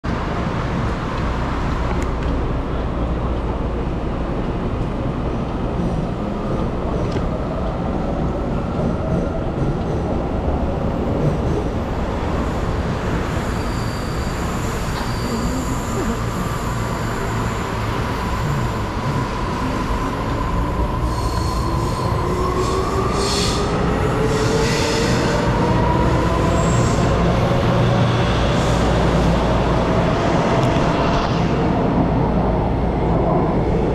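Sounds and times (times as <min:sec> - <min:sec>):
train rumble: 0:00.1 - 0:33.9
wheel squeals: 0:13.3 - 0:18.6.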